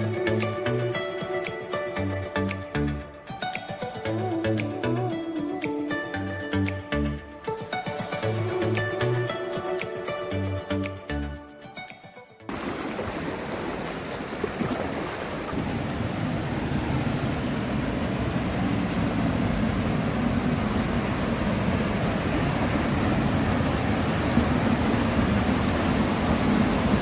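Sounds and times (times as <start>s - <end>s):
water rushing over boulders: 12.5s - 27.0s.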